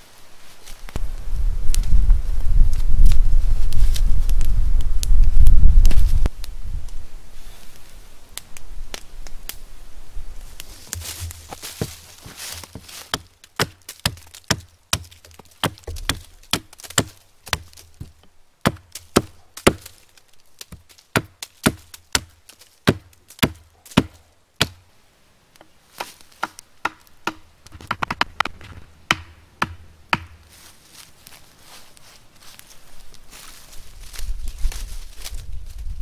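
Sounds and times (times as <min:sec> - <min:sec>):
hatchet chopping log: 0:12.6 - 0:19.9, 0:20.6 - 0:24.8, 0:26.0 - 0:28.5, 0:29.1 - 0:30.4.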